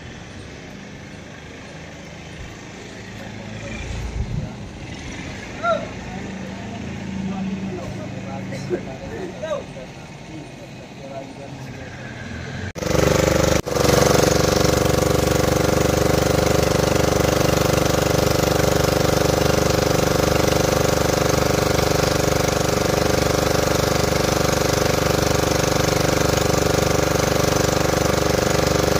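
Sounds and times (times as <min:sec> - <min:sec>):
motorboat engine droning: 0:00.0 - 0:28.9.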